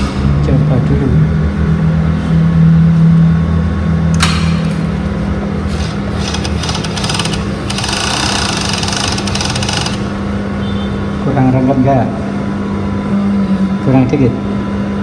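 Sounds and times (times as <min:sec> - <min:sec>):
sewing machine motor humming: 0:05.8 - 0:10.2
sewing machine stitching chatter: 0:06.2 - 0:10.1.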